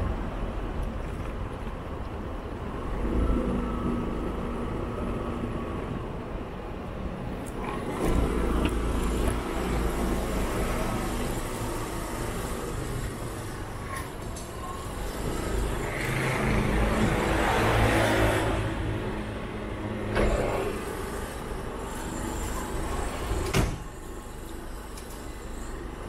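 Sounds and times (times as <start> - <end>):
road traffic noise: 0.0 - 26.0
vehicle passing close: 14.8 - 21.4.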